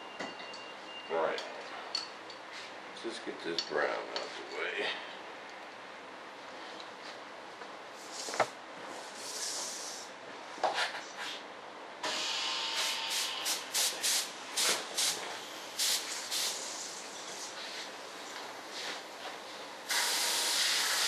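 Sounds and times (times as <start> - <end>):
paint spray gun spraying: 19.9 - 21.0.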